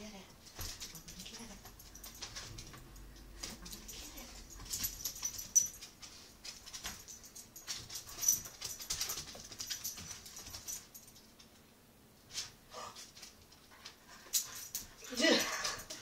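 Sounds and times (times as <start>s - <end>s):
dog claws clicking on wood floor: 0.5s - 11.5s.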